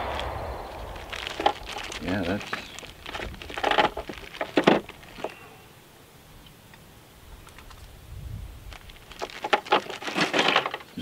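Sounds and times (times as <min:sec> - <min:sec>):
faint low rumble: 0:00.0 - 0:03.5.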